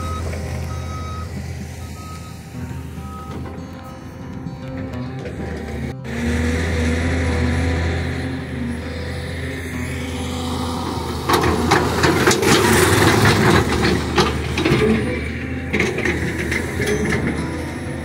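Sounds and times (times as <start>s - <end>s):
heavy machinery engine hum: 0.0s - 18.0s
rough clattering and scraping: 11.1s - 18.0s.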